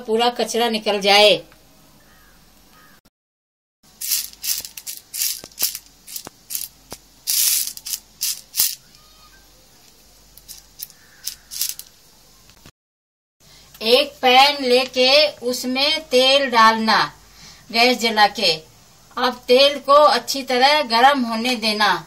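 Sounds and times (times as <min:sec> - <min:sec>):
kernels rattling in metal plate: 0:04.0 - 0:08.8, 0:10.4 - 0:11.9.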